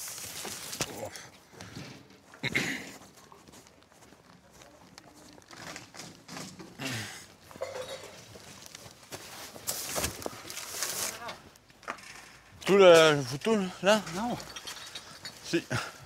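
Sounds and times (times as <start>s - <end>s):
cardboard rustling and scraping: 0.0s - 1.1s, 8.1s - 11.5s.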